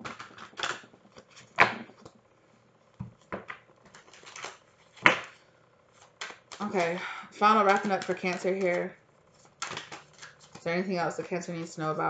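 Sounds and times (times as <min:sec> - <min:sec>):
cards being shuffled: 0:03.1 - 0:10.8.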